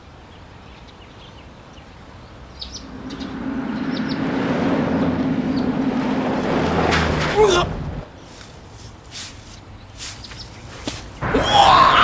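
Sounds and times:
car engine approaching: 0:02.4 - 0:08.2
bird chirps: 0:02.5 - 0:05.7.

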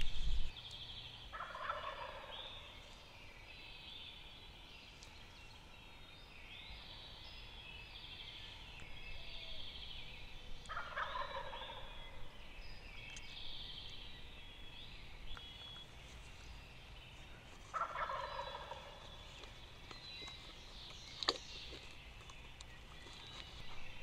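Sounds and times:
turkeys gobbling: 0:01.3 - 0:02.7, 0:10.7 - 0:11.9, 0:17.7 - 0:19.5.

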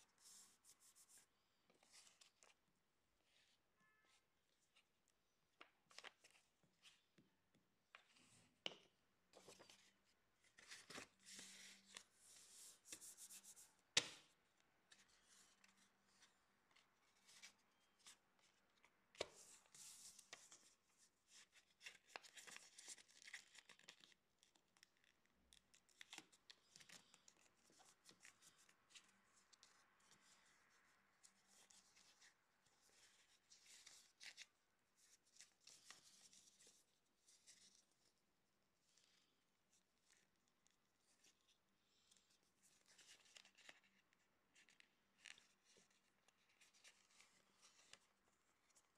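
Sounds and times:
paper rustling and crinkling: 0:09.3 - 0:14.3, 0:40.0 - 0:48.9.

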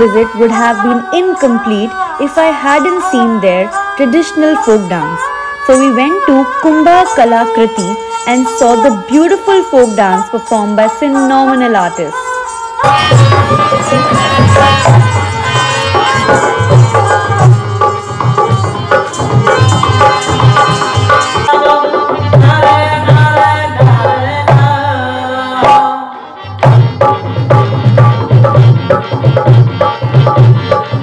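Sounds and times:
harmonium melody: 0:00.0 - 0:31.0
hand drum beating fast rhythm: 0:12.8 - 0:24.7, 0:26.6 - 0:31.0.

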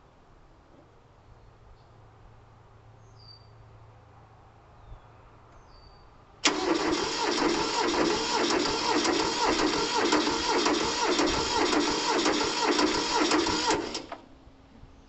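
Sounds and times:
faint bird chirps: 0:03.0 - 0:03.6, 0:04.8 - 0:06.1
diesel tractor engine starting: 0:06.4 - 0:14.4.

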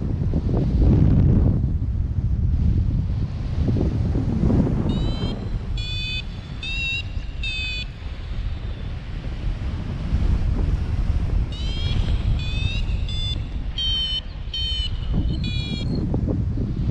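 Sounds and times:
wind rushing over microphone: 0:00.0 - 0:16.9
variometer short high beeps: 0:04.9 - 0:08.0, 0:11.5 - 0:16.0.

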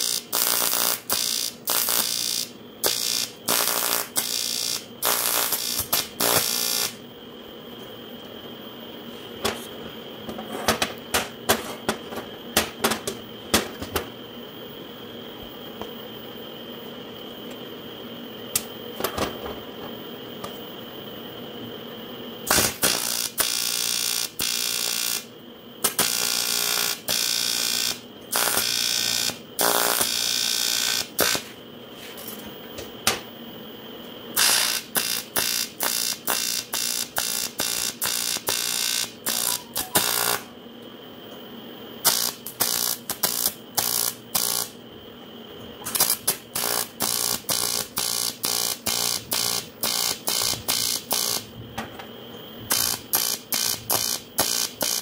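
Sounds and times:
welding arc: 0:00.0 - 0:07.0, 0:22.4 - 0:31.6, 0:34.3 - 0:40.5, 0:42.0 - 0:44.8, 0:45.8 - 0:51.5, 0:52.7 - 0:55.0.

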